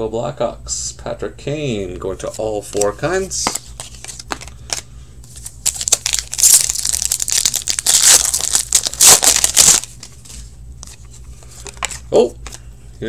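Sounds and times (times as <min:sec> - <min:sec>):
foil wrapper crinkling: 0:05.4 - 0:10.2.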